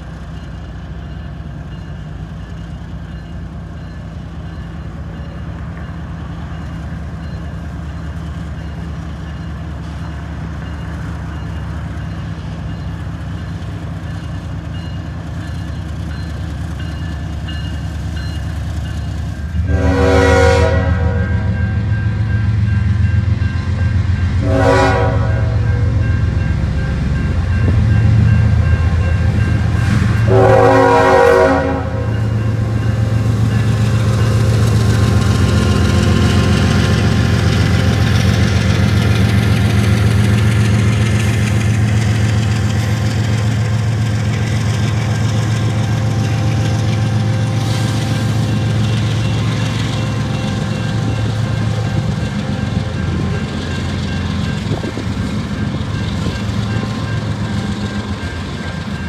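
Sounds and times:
locomotive engine rumble: 0.0s - 59.0s
locomotive chime horn: 16.1s - 59.0s.

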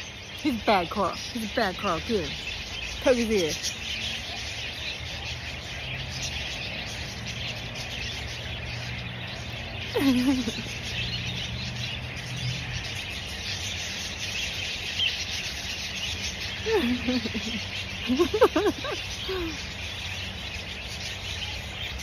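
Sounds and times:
budgerigars chattering and chirping: 0.0s - 22.0s.

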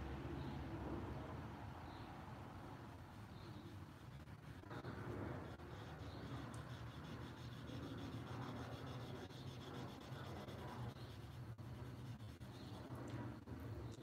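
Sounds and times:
steady low hum: 0.0s - 14.0s
pencil rubbing on paper: 3.2s - 13.0s.

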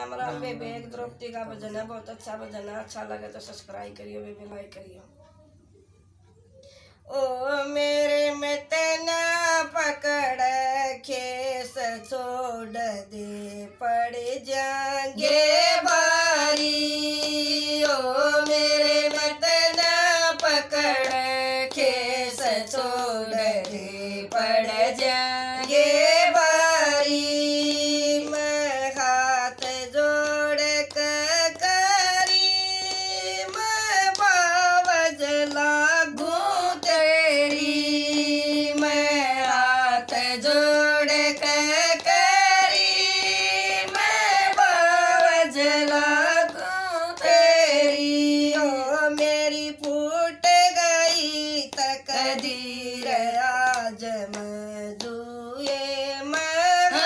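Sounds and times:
two women singing: 7.1s - 57.0s
hand clapping: 15.2s - 57.0s.

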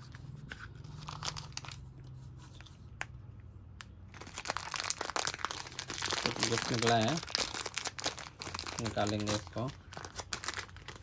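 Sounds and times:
plastic wrapper crinkling: 1.0s - 1.9s, 4.1s - 11.0s.

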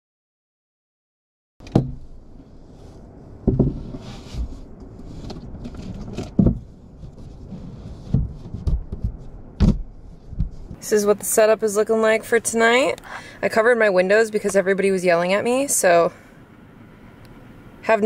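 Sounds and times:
knocks and thumps: 1.6s - 2.1s, 3.4s - 4.5s, 5.2s - 7.3s, 8.0s - 10.8s
rustling: 2.0s - 10.8s.

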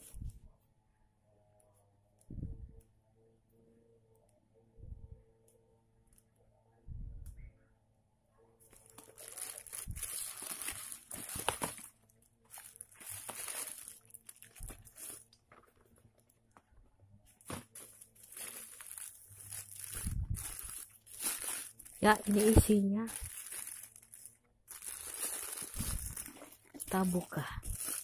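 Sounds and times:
plastic bag crinkling: 8.7s - 16.4s, 17.4s - 28.0s.

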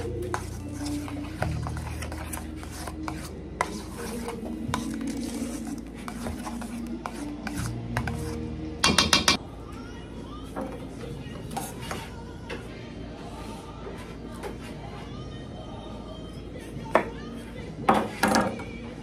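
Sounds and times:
utensil scraping metal bowl: 0.0s - 9.4s.

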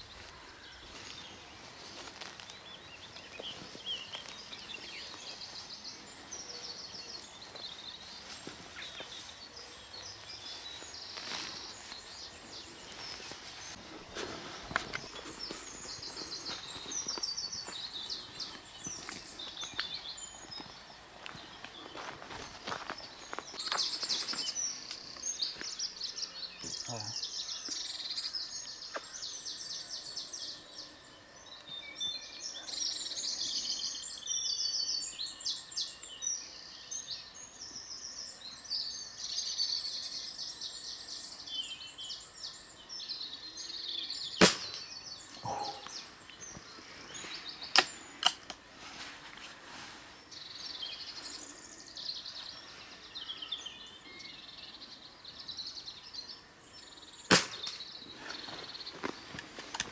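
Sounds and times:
songbirds singing: 0.0s - 59.9s
sharp loud crack: 44.4s - 44.8s, 57.3s - 57.8s.

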